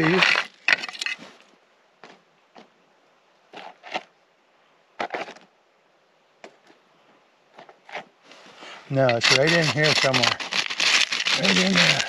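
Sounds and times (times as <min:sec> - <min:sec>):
rocks clacking and scraping: 0:00.0 - 0:02.7, 0:03.5 - 0:04.1, 0:05.0 - 0:05.5, 0:07.5 - 0:08.2, 0:08.9 - 0:12.0.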